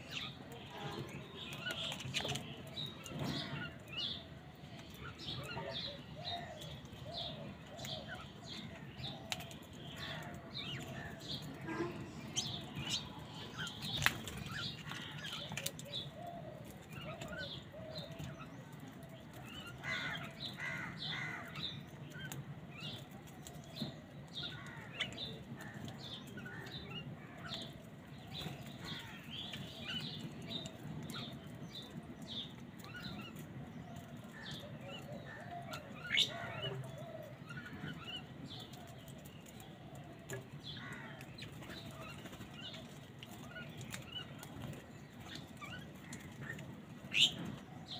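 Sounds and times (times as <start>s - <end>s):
birds chirping: 0.0s - 47.9s
crows cawing: 19.8s - 21.6s.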